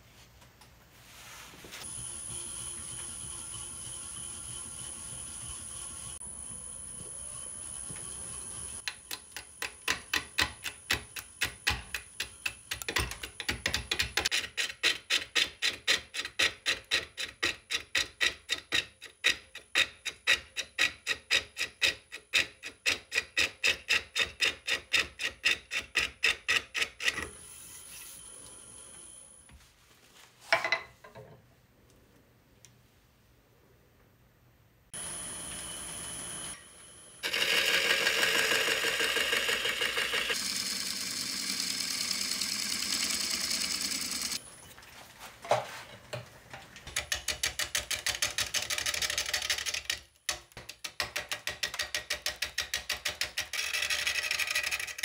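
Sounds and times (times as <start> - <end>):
hand tool scraping wood: 7.9 - 28.2.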